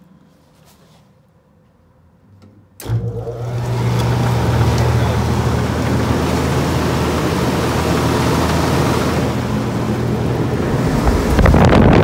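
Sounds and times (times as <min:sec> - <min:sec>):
furnace blower running: 0:02.8 - 0:12.0.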